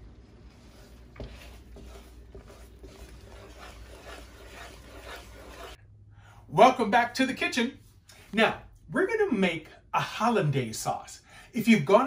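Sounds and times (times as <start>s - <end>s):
wooden spoon scraping: 0.1s - 5.8s.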